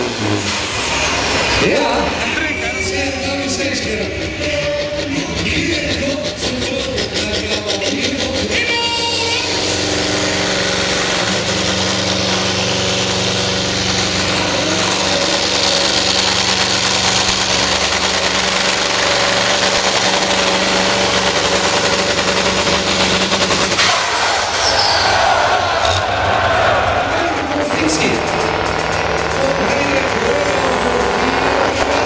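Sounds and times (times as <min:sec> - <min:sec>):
diesel engine at full power: 0:00.0 - 0:32.0.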